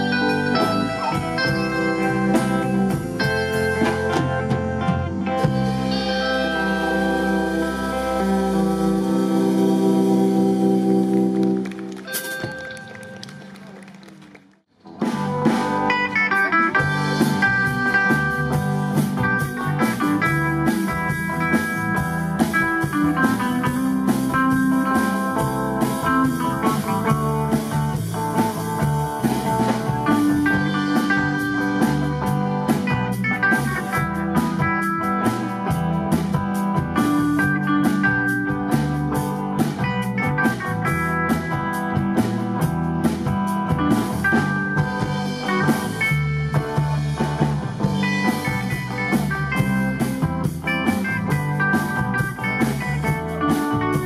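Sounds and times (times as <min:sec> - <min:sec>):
drum kit: 0:00.0 - 0:14.0, 0:14.8 - 0:54.0
amplified electric guitars: 0:00.0 - 0:14.2, 0:14.8 - 0:54.0.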